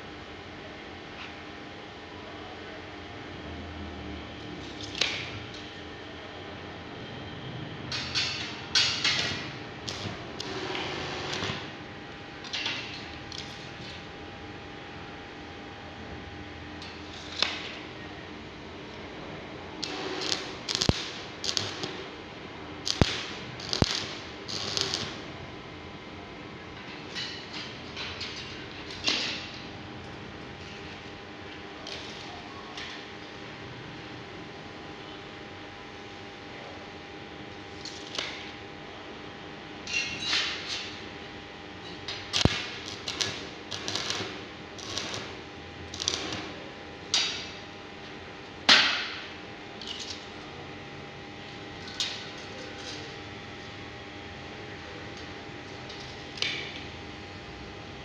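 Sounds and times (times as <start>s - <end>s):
welding arc snaps: 4.6s - 5.6s, 8.0s - 11.8s, 12.4s - 14.1s, 16.8s - 17.9s, 19.8s - 22.2s, 22.8s - 25.4s, 31.8s - 33.0s, 37.7s - 38.6s, 41.8s - 47.6s, 48.6s - 50.4s, 51.8s - 53.2s, 55.2s - 56.9s
welding arc crackling: 8.1s - 11.9s, 12.5s - 14.0s, 16.8s - 17.7s, 19.8s - 25.5s, 40.4s - 47.6s.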